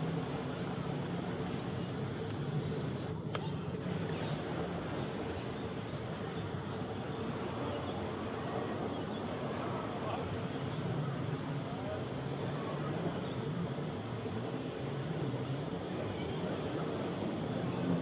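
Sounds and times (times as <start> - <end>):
faint voices: 0.0 - 18.0
insects droning: 0.0 - 18.0.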